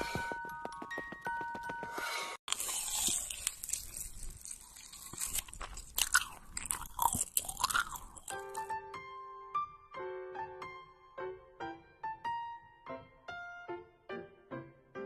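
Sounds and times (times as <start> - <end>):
crunching fried dough: 2.5 - 8.7.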